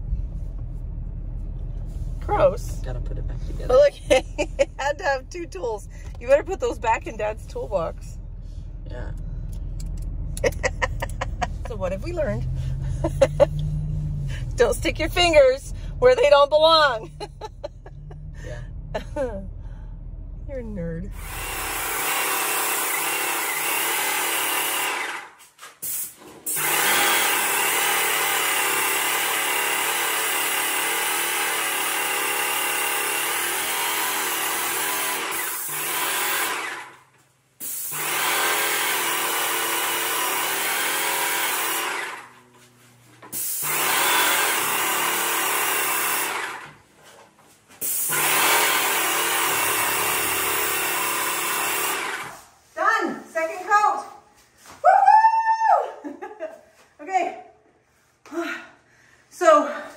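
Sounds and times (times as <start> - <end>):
airless paint sprayer running: 21.1 - 42.4, 43.2 - 46.8, 47.8 - 52.7.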